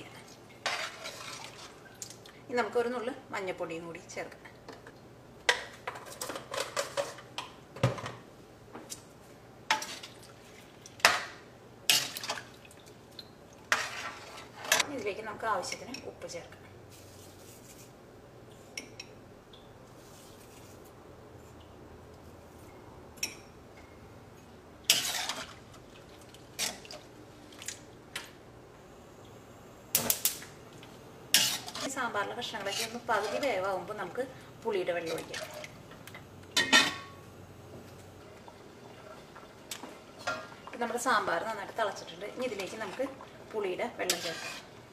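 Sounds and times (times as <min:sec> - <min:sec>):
metal spoon scraping steel pan: 0:24.9 - 0:25.5, 0:31.4 - 0:32.0, 0:32.6 - 0:33.6, 0:44.0 - 0:44.7.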